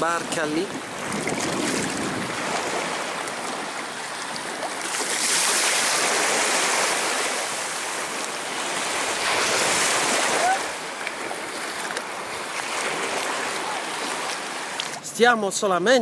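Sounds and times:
small waves washing on sand: 0.0 - 15.1.

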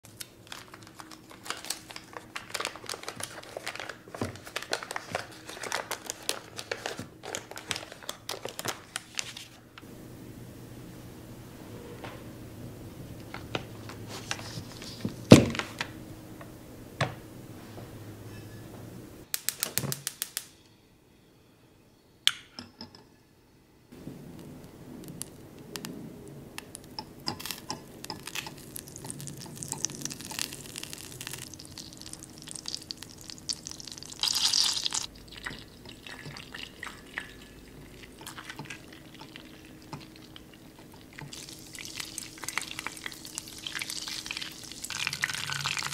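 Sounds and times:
melting butter bubbling and crackling: 26.6 - 45.9.

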